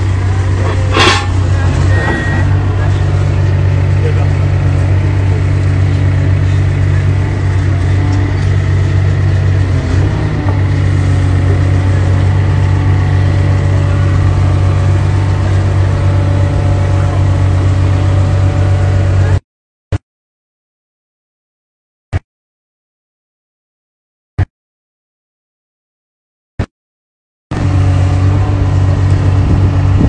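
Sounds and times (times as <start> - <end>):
excavator diesel engine running: 0.0 - 19.4, 27.5 - 30.0.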